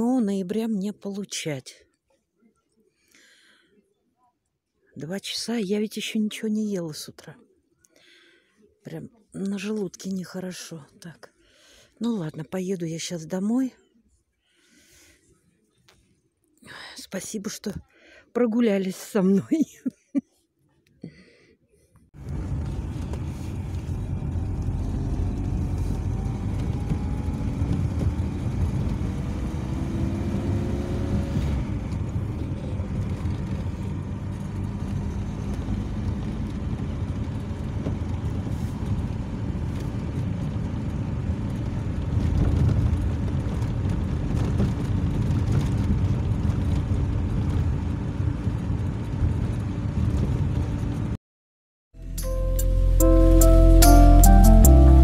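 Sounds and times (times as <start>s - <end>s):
car engine and road noise: 22.2s - 51.2s, 52.0s - 55.0s.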